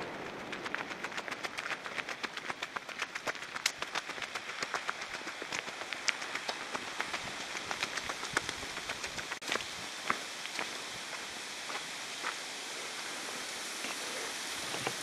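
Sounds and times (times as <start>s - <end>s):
footsteps on dry leaves and gravel: 3.4s - 12.5s.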